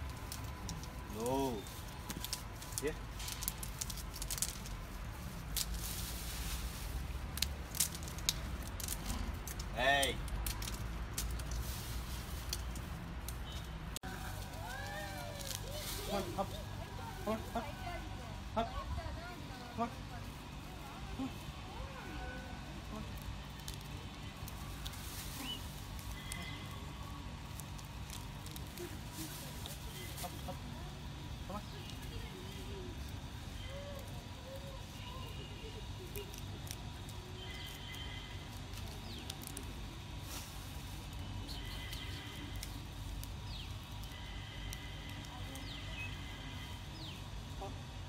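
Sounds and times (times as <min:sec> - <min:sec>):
rustling hiss: 0:00.0 - 0:48.0
plastic bag clicks and crackles: 0:02.0 - 0:04.8.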